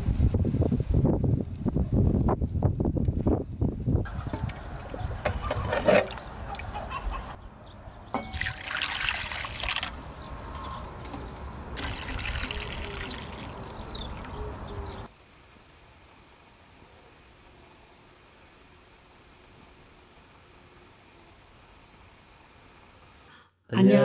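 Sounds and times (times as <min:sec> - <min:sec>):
broth splashing into a bowl: 0:08.2 - 0:10.3, 0:11.8 - 0:14.3.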